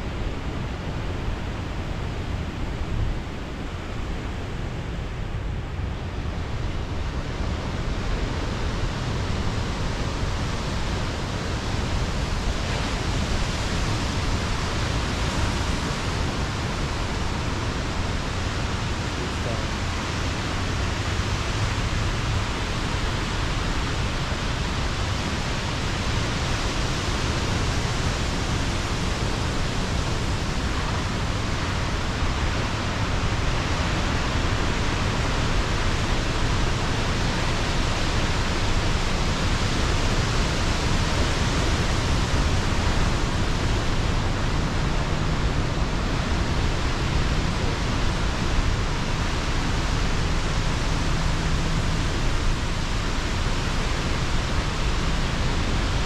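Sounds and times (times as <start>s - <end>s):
surf breaking along shore: 11.6s - 56.0s.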